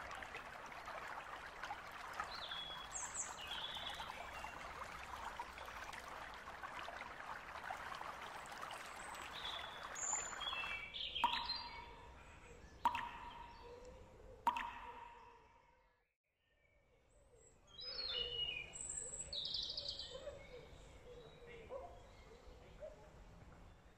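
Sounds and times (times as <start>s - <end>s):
stream babbling: 0.0s - 11.8s
small birds chirping: 2.0s - 5.6s, 8.6s - 14.5s.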